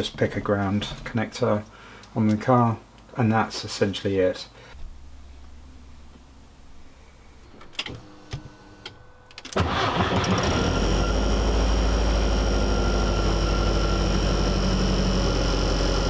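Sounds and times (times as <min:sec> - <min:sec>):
car engine starting and idling: 0:05.7 - 0:16.0.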